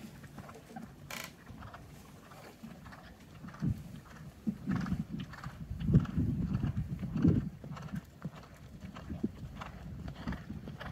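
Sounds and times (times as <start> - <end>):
horse hoofbeats on sand: 0.0 - 10.9.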